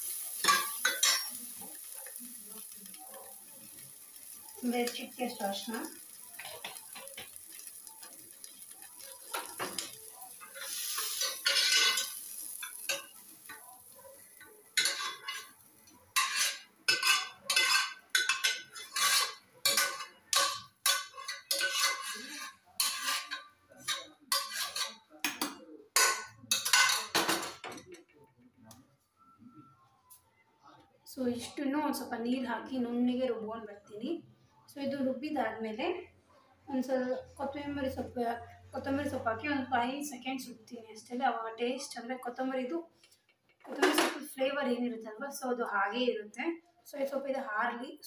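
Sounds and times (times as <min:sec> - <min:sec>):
metal ladle scraping pan: 0:08.8 - 0:13.6, 0:14.8 - 0:15.6, 0:16.2 - 0:25.0.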